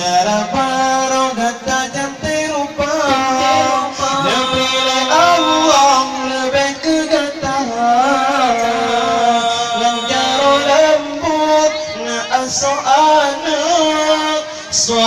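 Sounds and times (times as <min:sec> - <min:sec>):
man singing through microphone: 0:00.0 - 0:15.0
sustained accompaniment notes: 0:02.4 - 0:14.3.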